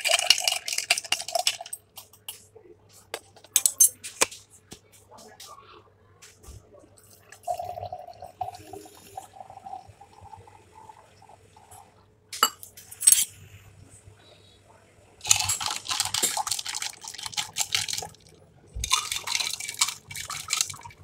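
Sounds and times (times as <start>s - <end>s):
milk pouring into jar: 15.2s - 21.0s.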